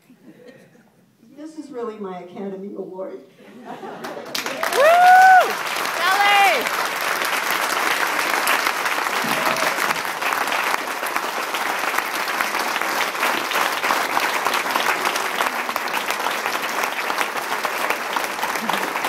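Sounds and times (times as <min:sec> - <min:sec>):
crowd clapping: 0:03.9 - 0:19.0.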